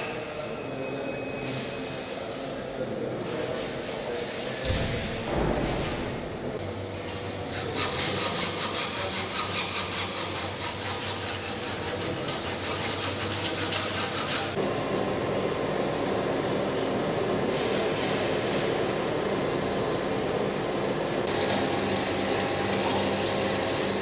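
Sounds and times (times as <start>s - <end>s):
hacksaw cutting metal: 7.5s - 14.6s, 21.3s - 24.0s
hand file rasping on metal: 7.5s - 14.6s.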